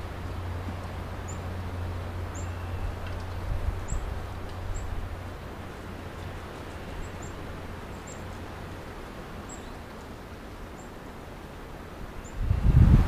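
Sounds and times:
woodland ambience: 0.0 - 12.4
microphone hiss: 0.0 - 13.0.

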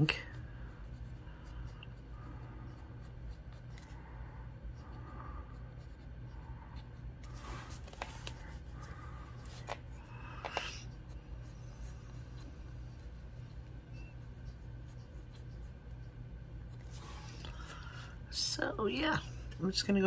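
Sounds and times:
pencil scratching on paper: 0.0 - 3.9, 4.7 - 9.8, 10.8 - 17.4.

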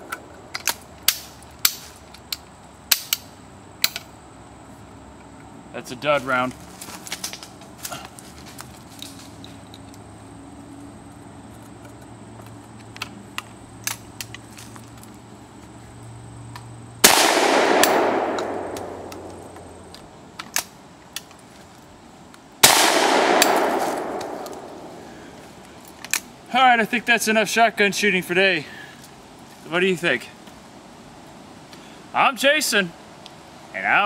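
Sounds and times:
shotgun shots echoing: 17.0 - 19.5, 22.6 - 25.3
shotgun action clicks: 17.1 - 21.3, 22.7 - 24.9.

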